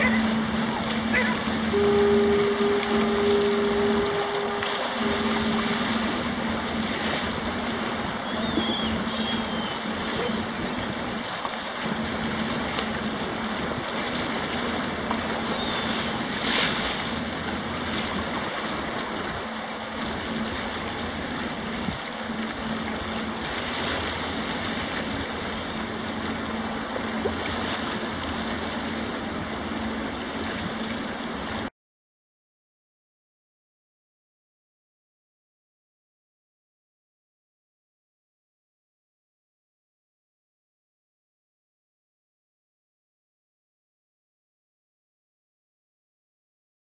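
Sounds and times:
faint gull calls: 0:00.0 - 0:06.2, 0:08.1 - 0:10.7
ship engine drone: 0:00.0 - 0:31.7
water rushing along hull: 0:00.0 - 0:31.7.

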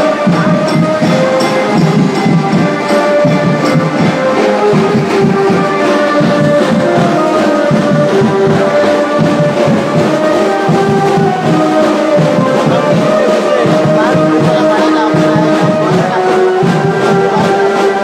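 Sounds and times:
brass horns playing melody: 0:00.0 - 0:18.0
steady drumming: 0:00.0 - 0:18.0.

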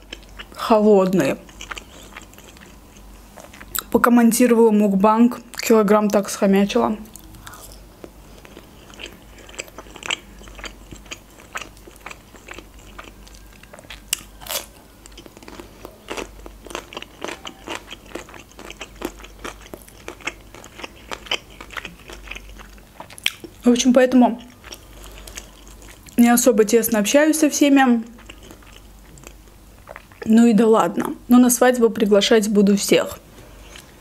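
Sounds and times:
crunchy chewing: 0:00.0 - 0:00.6, 0:01.2 - 0:03.9, 0:07.1 - 0:23.6, 0:24.4 - 0:26.2, 0:28.0 - 0:30.3.

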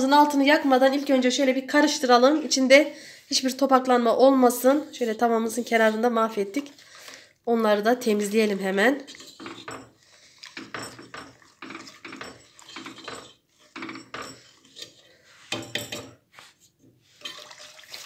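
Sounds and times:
whisk scraping a metal pot: 0:09.0 - 0:16.0, 0:17.0 - 0:18.0.

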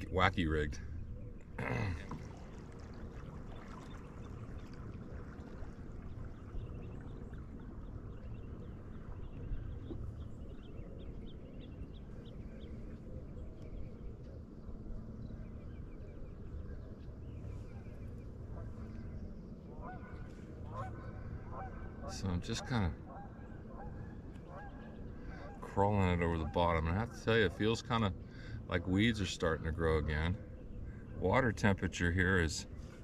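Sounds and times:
low wash of water: 0:01.7 - 0:13.4.

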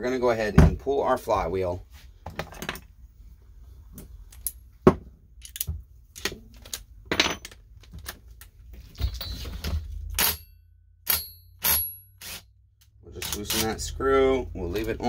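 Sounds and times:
metal tools clinking: 0:08.8 - 0:10.5.

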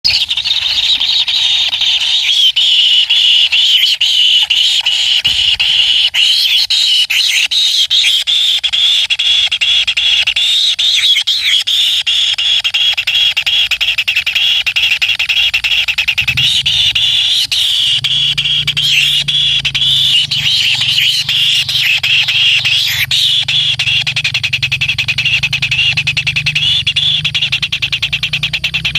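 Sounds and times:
nestlings buzzing chatter: 0:00.1 - 0:28.9
low hum: 0:15.8 - 0:28.9.

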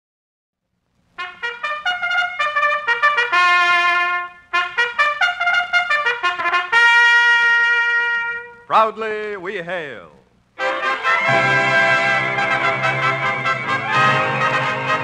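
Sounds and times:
trumpet fanfare: 0:01.2 - 0:08.9, 0:10.6 - 0:15.0.

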